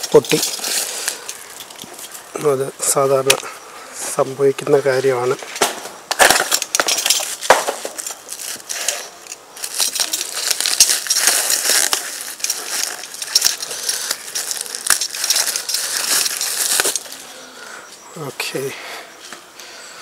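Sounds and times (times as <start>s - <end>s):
packing material crackling and crunching: 0.0s - 2.5s, 6.2s - 17.4s.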